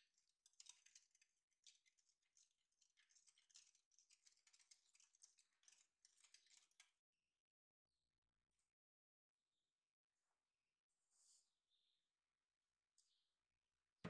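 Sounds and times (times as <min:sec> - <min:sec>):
whisk beating batter in a bowl: 0:00.0 - 0:07.0.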